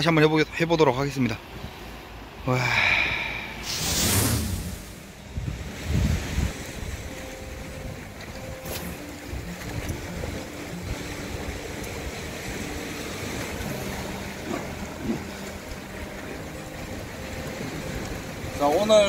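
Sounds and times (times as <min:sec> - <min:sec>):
sea waves washing against rocks: 0:01.6 - 0:19.0
brief sharp sound: 0:03.6 - 0:05.2
wind on microphone: 0:03.6 - 0:15.8.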